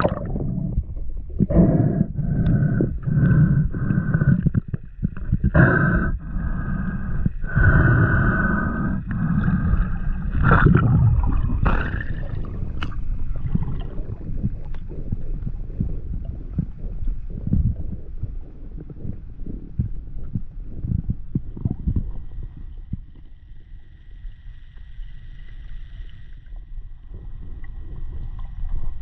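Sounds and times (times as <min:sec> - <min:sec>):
muffled underwater noise: 0:00.0 - 0:23.1.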